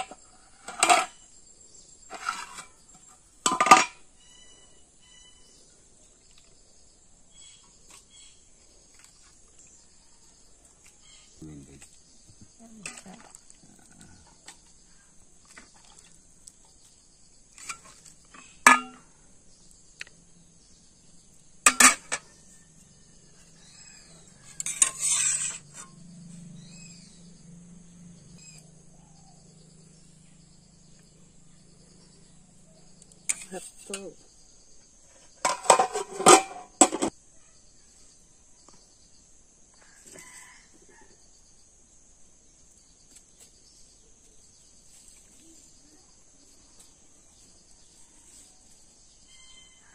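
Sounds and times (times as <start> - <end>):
ladle clinking against pots and plates: 0.0 - 1.1, 3.5 - 4.0, 18.6 - 19.0, 21.7 - 22.2, 35.4 - 37.1
insects trilling: 0.0 - 49.9.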